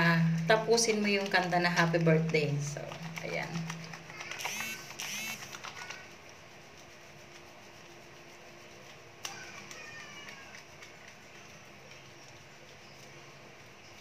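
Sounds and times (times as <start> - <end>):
steady low hum: 0.0 - 9.8
soapy hands rubbing together: 0.9 - 14.0.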